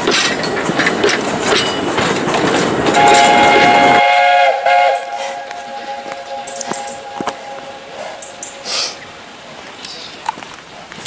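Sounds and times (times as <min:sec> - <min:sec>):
railway carriage wheel clatter: 0:00.0 - 0:11.0
steam locomotive whistle: 0:03.0 - 0:09.1.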